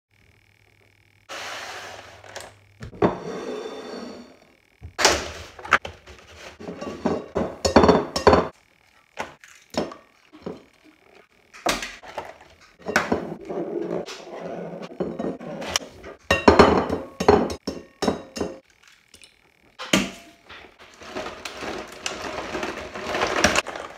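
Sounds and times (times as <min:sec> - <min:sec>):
rustling handling noise: 0:20.6 - 0:23.9.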